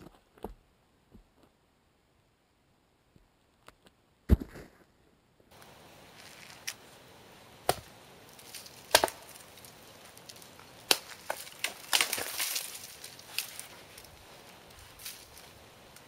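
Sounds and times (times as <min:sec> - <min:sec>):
hatchet chopping tree trunk: 0:07.6 - 0:13.7.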